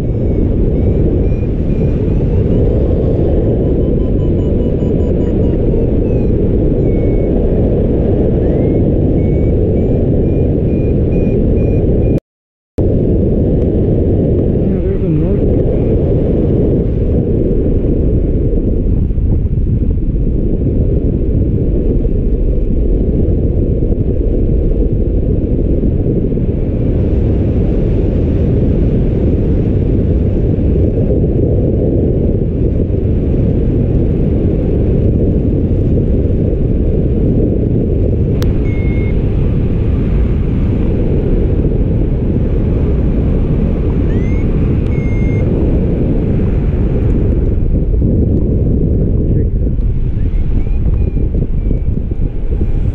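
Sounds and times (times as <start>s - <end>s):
rising glide tone: 0.0s - 7.3s, 14.5s - 15.9s
wind rumbling on microphone: 0.0s - 12.2s, 12.8s - 52.9s
short high tone: 14.6s - 15.8s, 38.5s - 39.2s, 44.1s - 45.4s
click: 44.8s - 45.1s.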